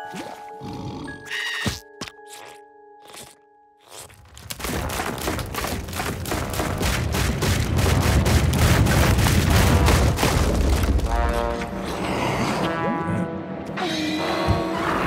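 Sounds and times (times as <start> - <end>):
music: 0.0 - 8.6, 9.8 - 15.0
rapid cartoon banging: 4.6 - 11.2
deep rumble: 6.8 - 11.9.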